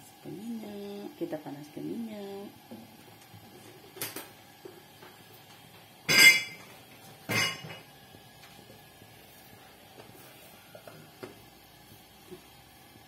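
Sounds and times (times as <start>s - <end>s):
metallic clanks from a steel wok: 6.1s - 6.7s, 7.3s - 7.9s.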